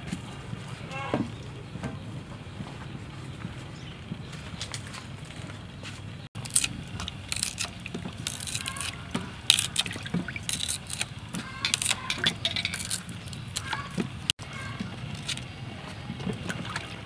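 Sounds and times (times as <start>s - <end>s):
water splashing in steel basin: 6.8s - 14.2s, 16.1s - 17.0s.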